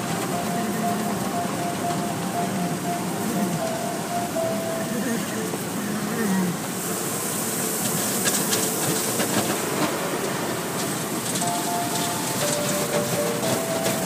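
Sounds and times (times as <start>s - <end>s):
car wash machinery running: 6.6s - 14.0s.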